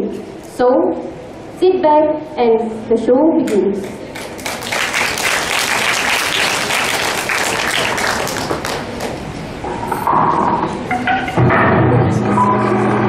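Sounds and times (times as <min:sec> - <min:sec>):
audience applauding: 0:03.8 - 0:09.4.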